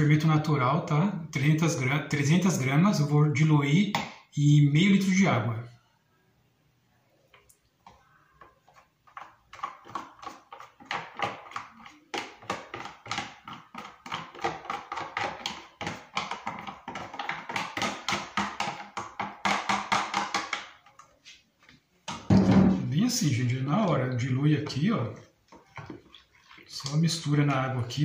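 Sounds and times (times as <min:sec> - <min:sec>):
metal spoon scraping plastic tub: 0:07.8 - 0:21.4, 0:22.1 - 0:28.0.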